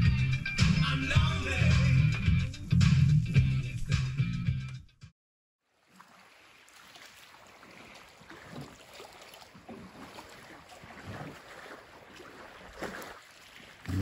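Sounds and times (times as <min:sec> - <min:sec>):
waves lapping against boat hull: 0:05.6 - 0:14.0.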